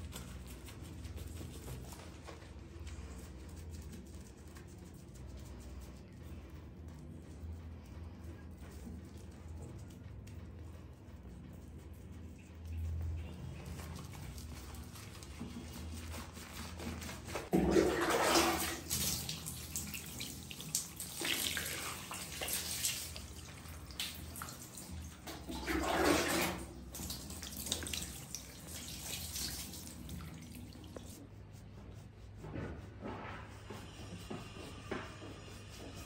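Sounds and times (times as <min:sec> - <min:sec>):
water pouring and splashing: 0:13.7 - 0:31.2.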